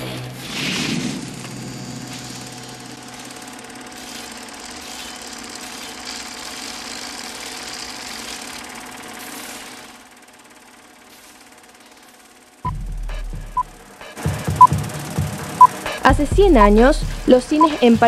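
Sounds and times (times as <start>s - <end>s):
film projector mechanical chatter: 1.3s - 18.0s.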